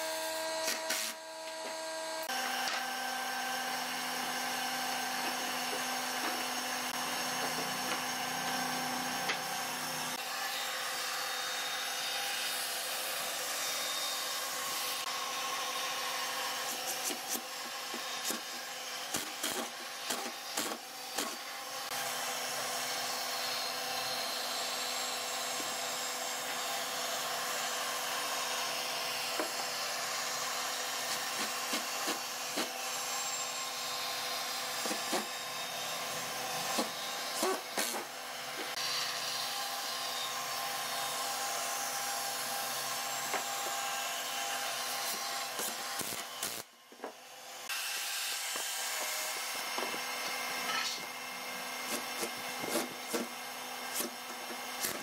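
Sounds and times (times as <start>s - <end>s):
power tool motor hum: 0.0s - 55.0s
tool scraping against wood: 34.8s - 35.4s.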